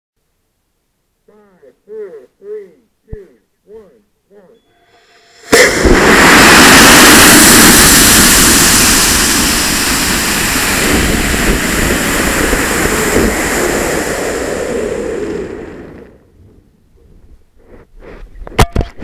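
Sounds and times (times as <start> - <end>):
rocket motor roar: 5.0 - 16.3.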